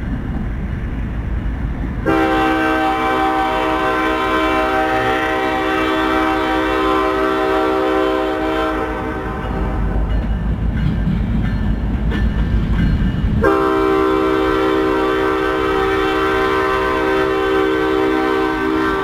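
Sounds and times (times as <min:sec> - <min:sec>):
locomotive air horn chord: 0:02.0 - 0:10.0, 0:13.4 - 0:19.0.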